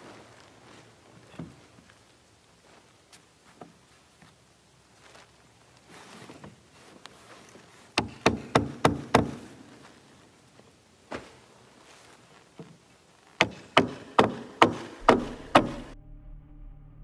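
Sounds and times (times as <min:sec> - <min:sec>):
hammer striking wood: 0:08.0 - 0:09.6, 0:13.4 - 0:16.0.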